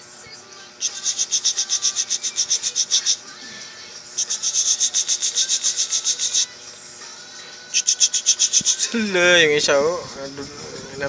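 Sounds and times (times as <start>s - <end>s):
rapid rhythmic rasping scratch: 0.8s - 3.3s, 4.1s - 6.5s, 7.7s - 9.0s.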